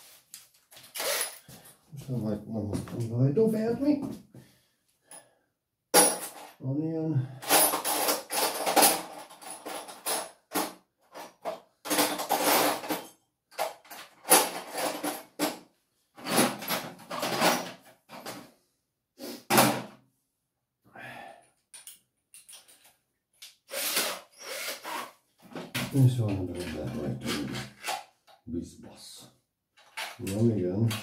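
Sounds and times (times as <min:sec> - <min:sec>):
objects scraping and clattering: 0:07.4 - 0:15.6, 0:16.2 - 0:18.6, 0:25.4 - 0:28.1.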